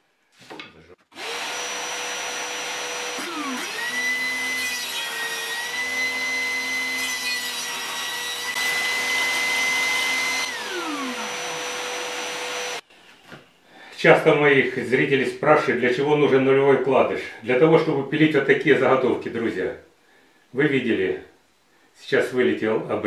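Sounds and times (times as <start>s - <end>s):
saw cutting wooden board: 1.1s - 12.8s
shop vacuum running: 1.1s - 12.8s
table saw whining: 1.1s - 12.8s.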